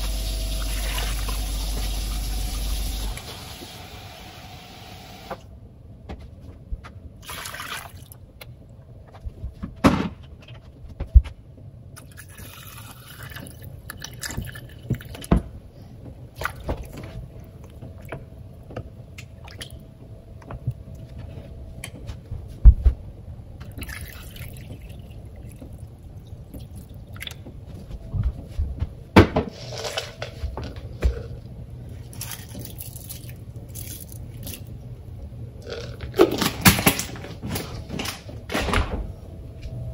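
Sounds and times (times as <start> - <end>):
liquid sloshing and dripping: 12.0 - 15.3, 16.4 - 19.8, 23.6 - 27.6, 32.0 - 34.7.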